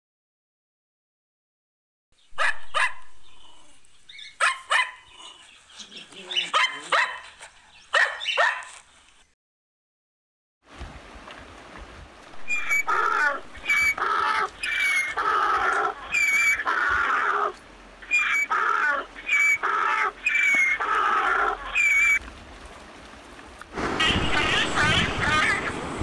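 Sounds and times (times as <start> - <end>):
donkey braying: 12.5 - 22.2.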